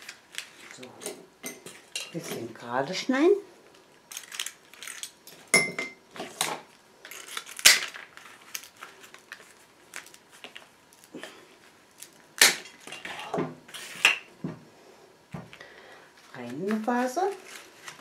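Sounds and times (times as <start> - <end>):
leaves and twigs rustling: 16.2 - 18.0.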